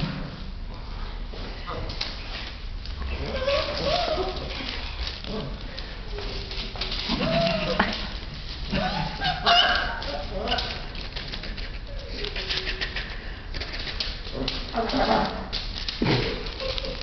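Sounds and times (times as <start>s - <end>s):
paws scrabbling on newspaper: 1.6s - 17.0s
puppies whining and yelping: 3.1s - 4.8s, 7.1s - 8.0s, 8.7s - 13.2s.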